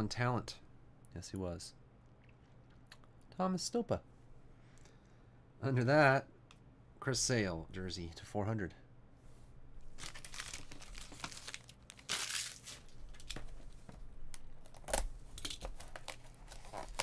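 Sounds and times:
plastic wrap crinkling and tearing: 9.9s - 13.4s, 14.6s - 17.0s.

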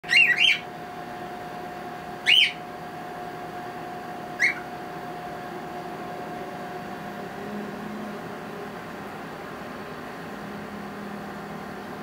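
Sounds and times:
cockatiel whistled calls: 0.0s - 0.7s, 2.2s - 2.6s, 4.4s - 4.7s.

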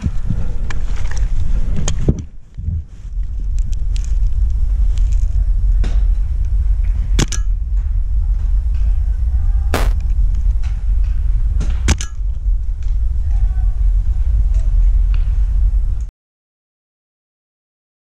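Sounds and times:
wind rumble on microphone: 0.0s - 16.1s
paintball marker pops: 9.8s - 10.0s.

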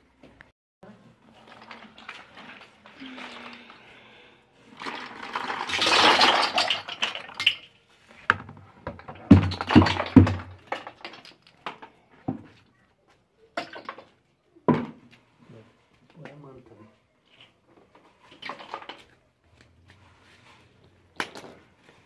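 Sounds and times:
plastic bottle caps clattering: 4.7s - 7.7s, 9.0s - 12.0s, 17.2s - 19.2s, 21.1s - 21.7s.

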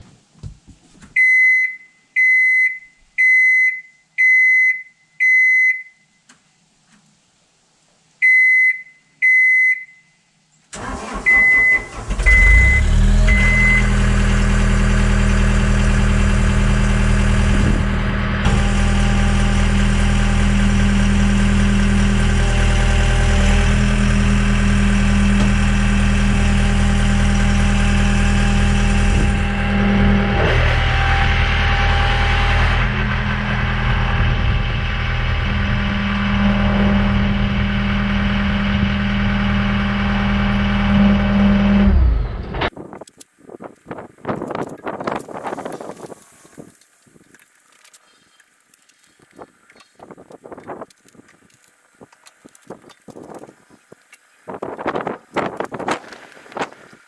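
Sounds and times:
diesel engine cranking and starting: 10.7s - 42.7s
diesel engine idling: 10.8s - 40.9s.

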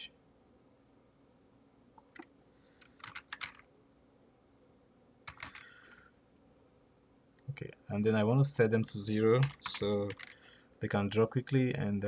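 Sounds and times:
faint keyboard typing: 2.0s - 3.7s, 5.2s - 6.1s, 9.2s - 10.6s.

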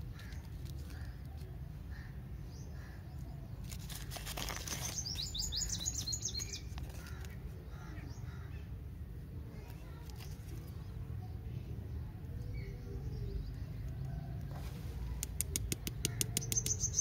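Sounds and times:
candy wrapper crinkling: 3.6s - 5.4s
bird chirping: 4.6s - 7.2s, 15.6s - 17.0s.

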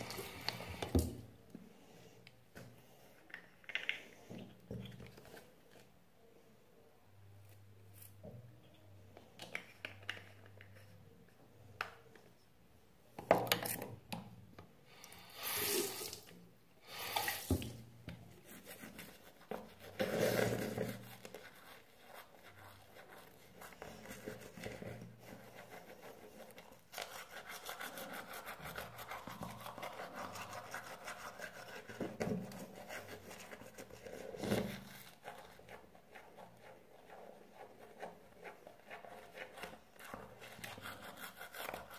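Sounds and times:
toothbrush scrubbing teeth: 18.6s - 41.9s.

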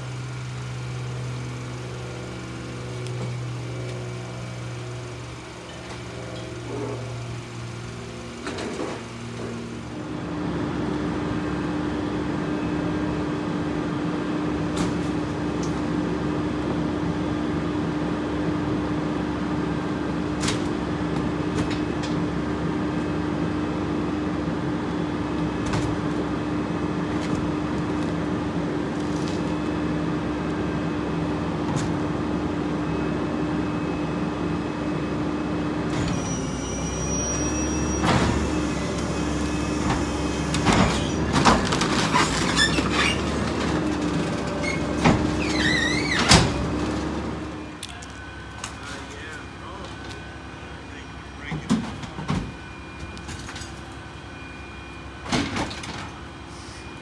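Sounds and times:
garbage truck mechanical hum: 0.0s - 57.0s
wavering squeal: 36.0s - 41.3s.

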